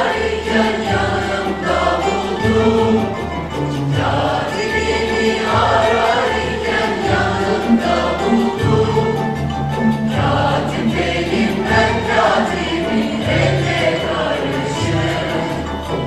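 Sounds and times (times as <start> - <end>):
frame drums beating: 0.0 - 16.0
mixed choir singing in unison: 0.0 - 16.0
oud: 0.0 - 16.0
violin: 0.0 - 16.0.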